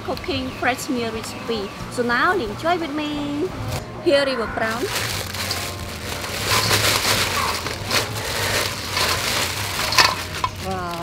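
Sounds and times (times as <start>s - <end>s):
plastic bag crinkling: 4.7s - 11.0s.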